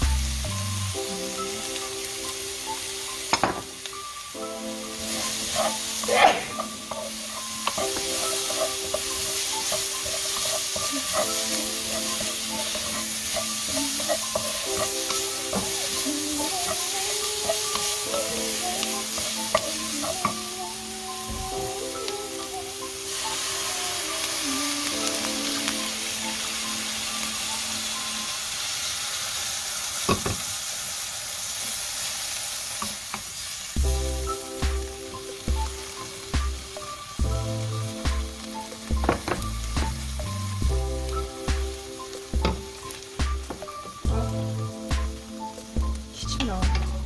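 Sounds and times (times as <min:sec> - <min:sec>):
vegetables sizzling in a wok: 0:00.0 - 0:47.0
wooden spatula scraping a pan: 0:05.1 - 0:20.2.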